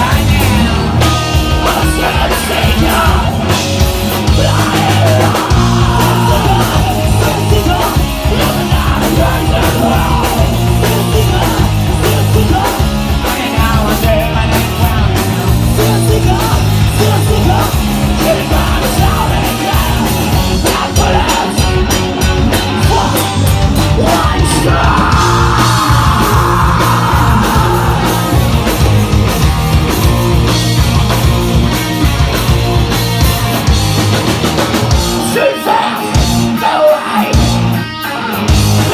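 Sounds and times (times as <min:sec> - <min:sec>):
bass: 0:00.0 - 0:38.9
distorted electric guitars: 0:00.0 - 0:38.9
drums: 0:00.0 - 0:38.9
shouted vocals: 0:23.9 - 0:28.5.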